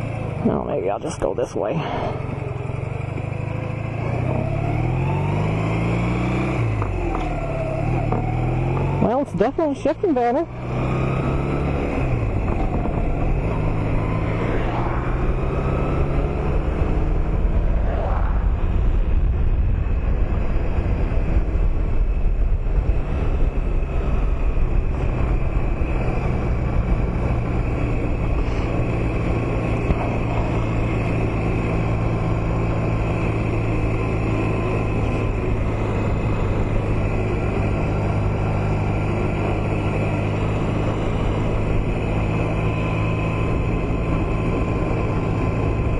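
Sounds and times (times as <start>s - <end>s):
motorcycle engine running: 0.0s - 45.9s
wind rush on microphone: 12.0s - 33.9s.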